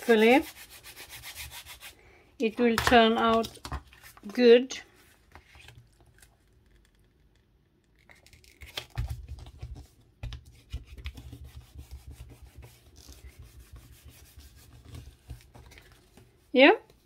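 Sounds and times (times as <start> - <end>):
paper being rubbed and scratched: 0.0 - 2.0, 10.6 - 16.0.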